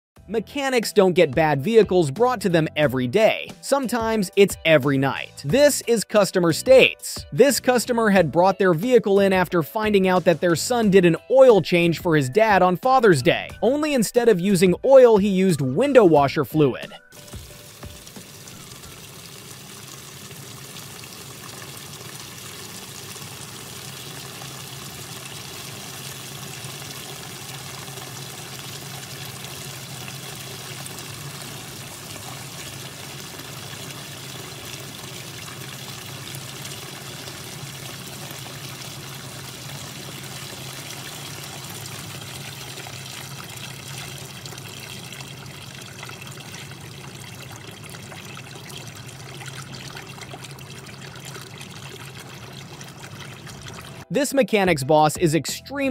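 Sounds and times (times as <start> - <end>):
liquid pouring and trickling: 14.9 - 54.1.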